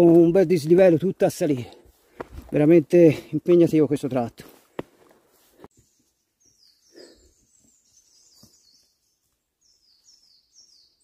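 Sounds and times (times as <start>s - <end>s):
faint high-pitched bird song: 5.7s - 11.0s.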